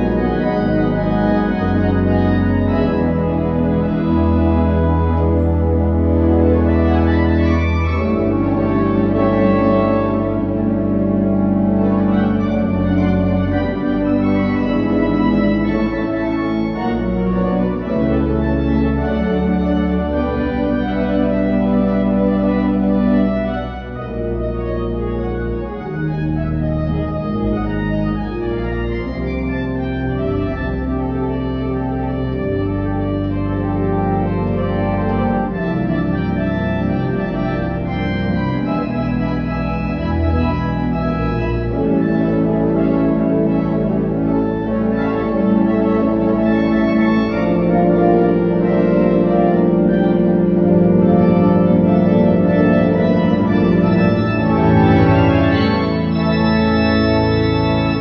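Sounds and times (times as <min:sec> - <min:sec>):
pipe organ chords: 0:00.0 - 0:58.0.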